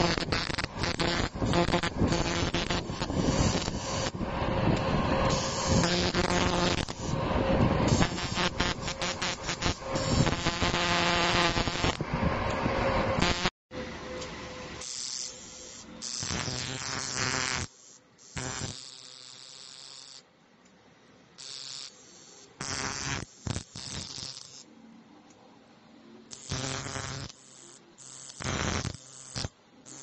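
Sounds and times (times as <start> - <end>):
welder arc starter crackling: 0.0 - 4.2, 4.8 - 7.2, 7.9 - 12.0, 14.8 - 17.7.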